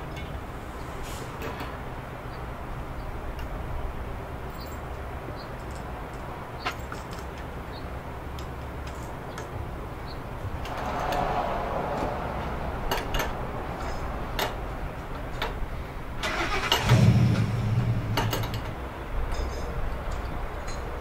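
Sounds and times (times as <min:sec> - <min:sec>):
low engine rumble: 0:09.6 - 0:21.0.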